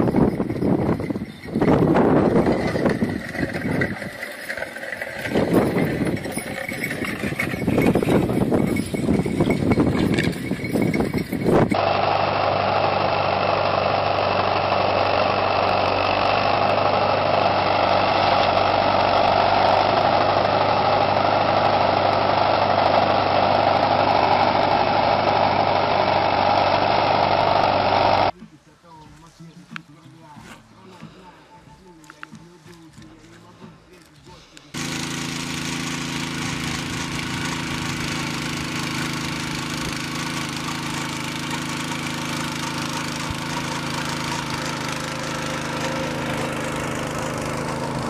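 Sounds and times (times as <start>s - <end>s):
gusting wind: 0.0s - 11.8s
tractor engine running under load: 0.0s - 28.4s, 30.6s - 48.0s.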